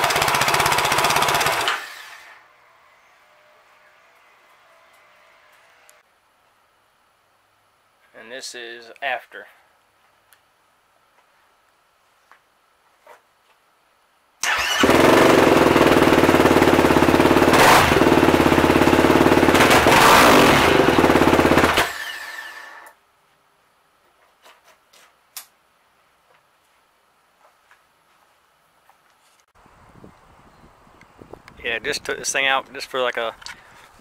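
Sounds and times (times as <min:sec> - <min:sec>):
quad engine revving: 0:00.0 - 0:02.2, 0:14.4 - 0:22.7.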